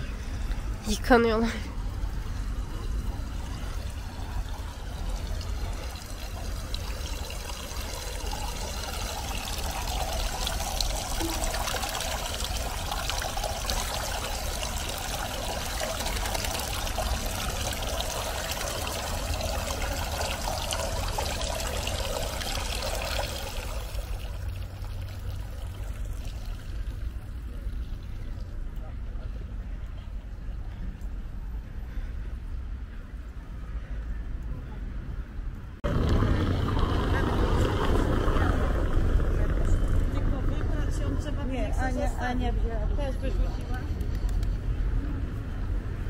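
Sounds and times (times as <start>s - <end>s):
running water trickling: 0.3s - 28.6s.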